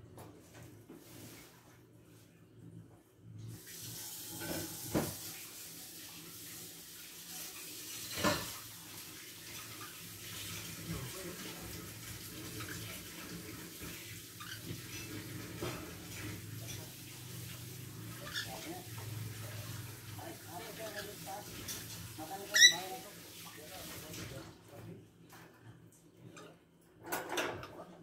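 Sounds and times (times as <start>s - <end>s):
water running from tap: 3.5s - 24.6s.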